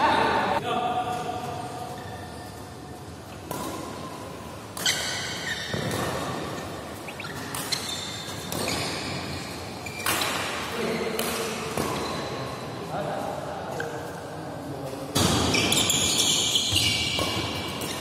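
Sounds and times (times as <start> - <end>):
rackets hitting shuttlecock: 3.3 - 12.3, 15.1 - 18.0.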